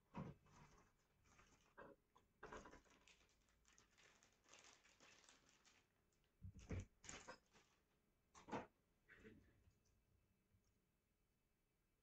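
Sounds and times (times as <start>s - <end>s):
plastic bag crinkling: 2.6s - 6.2s, 7.0s - 7.8s.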